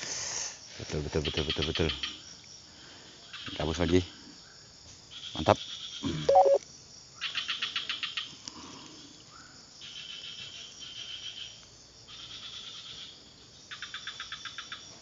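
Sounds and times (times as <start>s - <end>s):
small animals chirping: 6.3s - 6.6s.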